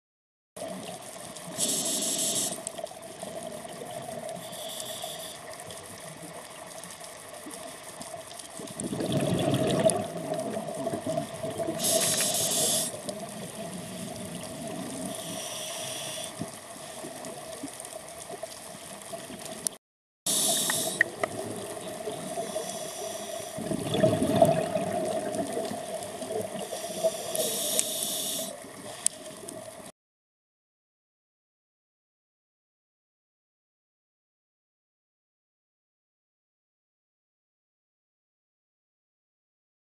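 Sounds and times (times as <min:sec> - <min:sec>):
diver breathing through regulator: 0:01.5 - 0:02.7, 0:04.4 - 0:05.6, 0:11.7 - 0:13.1, 0:15.0 - 0:16.6, 0:20.3 - 0:21.2, 0:22.2 - 0:23.6, 0:26.6 - 0:29.2
exhaled bubbles rushing: 0:08.7 - 0:12.0, 0:21.0 - 0:22.4, 0:23.6 - 0:26.6.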